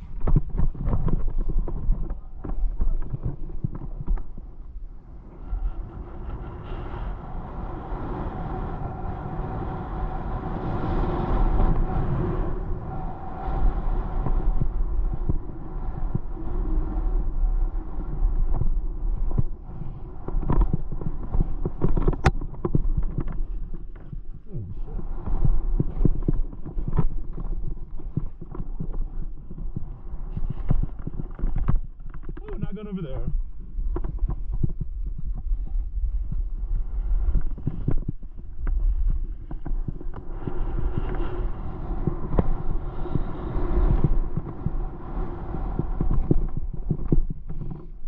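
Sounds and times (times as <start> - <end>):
skis knocking on bumps: 0.0 - 4.5, 18.3 - 48.0
steady low rumble: 0.0 - 48.0.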